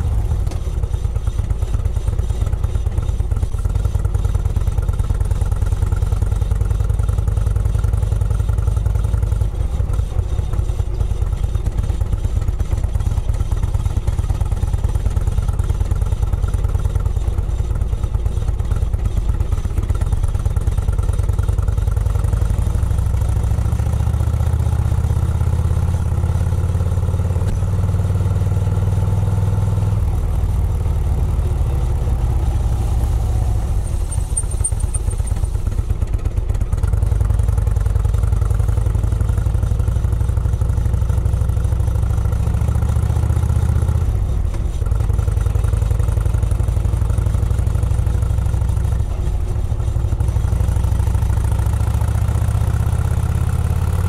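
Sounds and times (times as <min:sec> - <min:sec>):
road and wind noise: 0:00.0 - 0:54.0
car engine running: 0:30.0 - 0:42.4.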